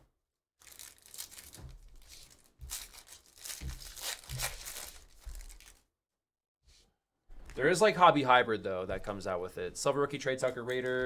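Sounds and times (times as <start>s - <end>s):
foil wrapper tearing and crinkling: 0.6s - 5.8s.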